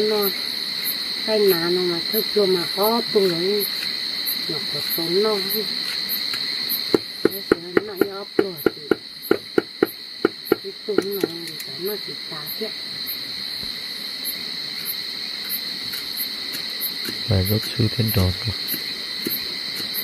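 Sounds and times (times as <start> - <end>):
insects buzzing: 0.0 - 20.0
sharp clicking calls: 5.5 - 11.9, 15.4 - 20.0
wavering low-pitched calls: 17.3 - 18.6.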